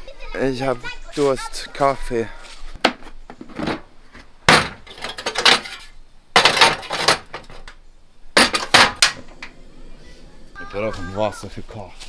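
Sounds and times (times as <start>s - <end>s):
clattering and scraping handling: 2.5s - 7.8s.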